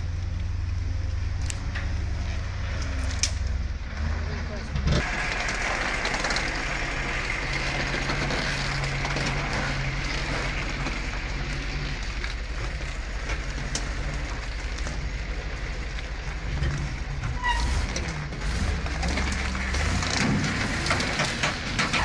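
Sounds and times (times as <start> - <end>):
truck engine under load: 0.0 - 22.0.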